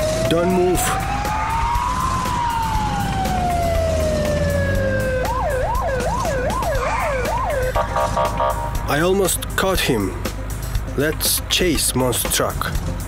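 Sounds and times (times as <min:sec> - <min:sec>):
police siren wailing and yelping: 0:00.0 - 0:08.8.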